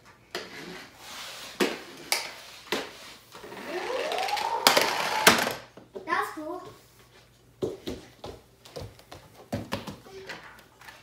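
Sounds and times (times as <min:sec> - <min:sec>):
toy car motor whine: 0:03.4 - 0:05.6
toy car wheels rolling: 0:03.4 - 0:05.7.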